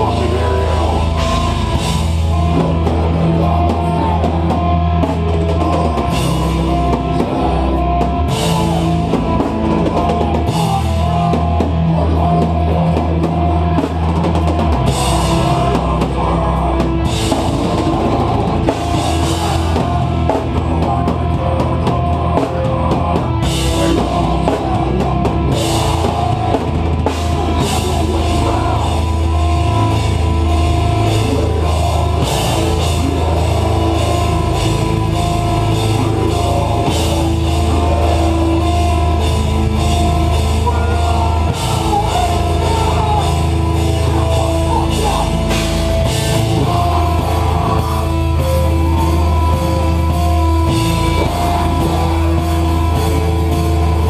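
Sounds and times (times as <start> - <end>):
distorted heavy guitars: 0.0 - 54.0
drum kit with cymbal crashes: 0.0 - 54.0
harsh screamed vocals: 0.0 - 54.0.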